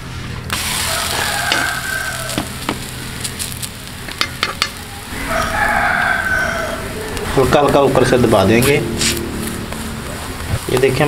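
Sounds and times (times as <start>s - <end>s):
flatbread sizzling on griddle: 0.0s - 6.6s
rooster crowing: 0.7s - 2.8s, 4.9s - 10.3s
metal utensils tapping griddle: 1.5s - 1.8s, 4.1s - 4.8s.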